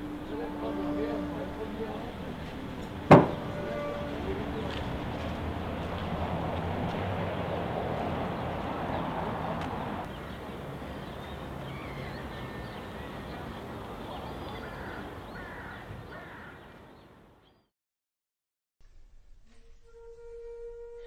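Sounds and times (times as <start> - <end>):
boat engine rumble: 0.0 - 15.3
birds cawing: 14.3 - 16.8.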